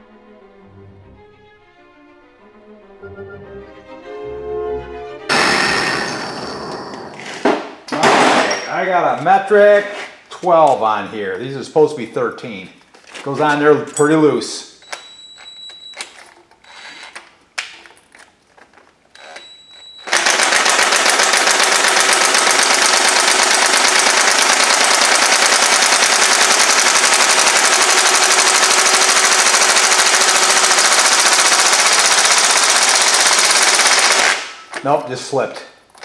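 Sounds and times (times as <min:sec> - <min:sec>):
impact wrench hammering: 0:05.3 - 0:08.7, 0:20.1 - 0:34.9.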